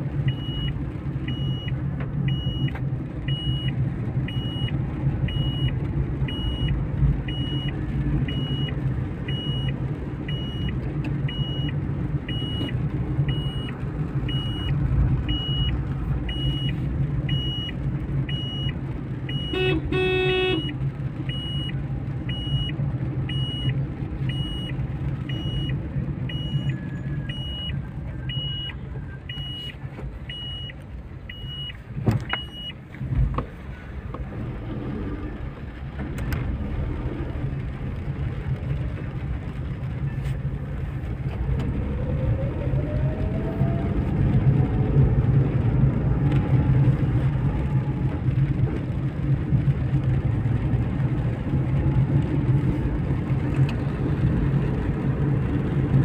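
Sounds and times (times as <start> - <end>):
car engine and road rumble: 0.0 - 56.0
turn signal ticking: 0.0 - 56.0
car horn honking: 19.3 - 20.7.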